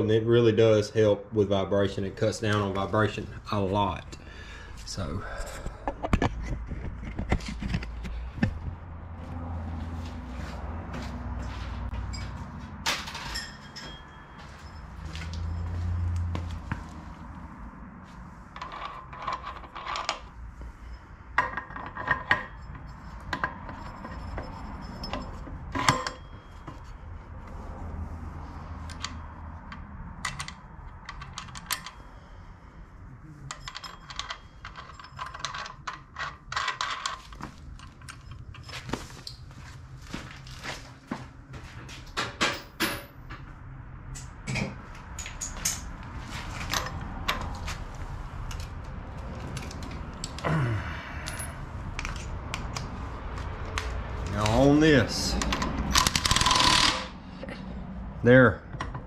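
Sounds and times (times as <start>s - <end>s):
metal parts clinking and knocking: 18.5s - 26.9s, 28.9s - 32.1s, 33.4s - 39.4s, 44.2s - 45.9s, 46.5s - 47.7s, 51.2s - 52.8s, 53.4s - 57.2s.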